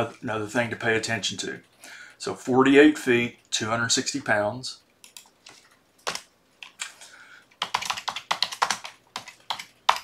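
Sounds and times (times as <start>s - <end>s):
keyboard typing: 5.0s - 10.0s.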